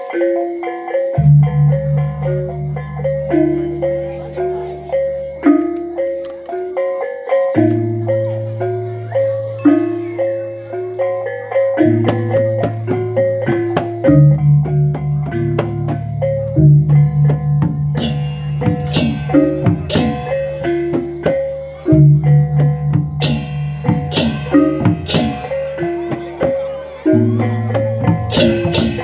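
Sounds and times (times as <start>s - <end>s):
bronze pot gong melody: 11.7s - 29.0s
low gongs ringing: 12.0s - 29.0s
cymbal crashes: 18.0s - 20.6s, 23.2s - 26.3s, 28.1s - 29.0s.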